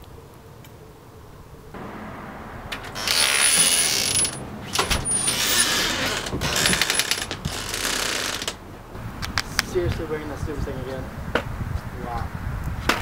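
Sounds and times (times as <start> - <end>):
door rattling: 1.9 - 9.0.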